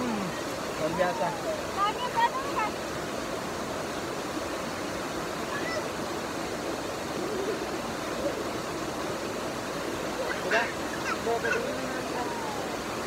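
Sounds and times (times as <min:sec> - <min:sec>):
water rushing down waterfall: 0:00.0 - 0:13.0.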